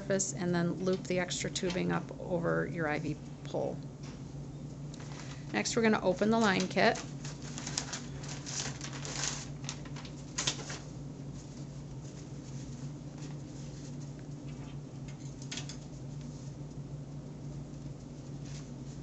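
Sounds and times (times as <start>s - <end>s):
steady low hum: 0.0s - 19.0s
packaging rustling and crinkling: 5.0s - 14.1s.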